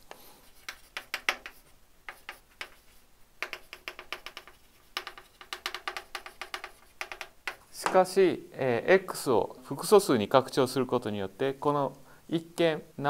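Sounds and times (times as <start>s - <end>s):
chalk tapping and scratching: 0.0s - 8.0s.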